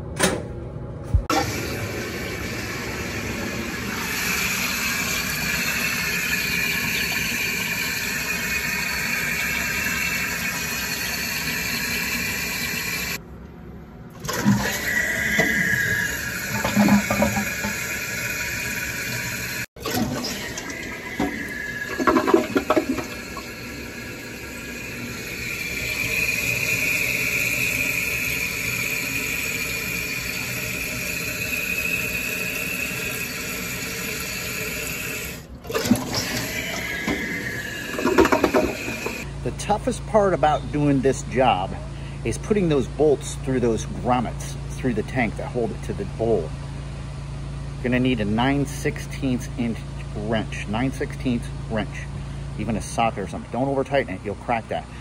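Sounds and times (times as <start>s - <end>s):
toilet fill valve hissing: 1.3s - 13.2s, 14.2s - 39.3s.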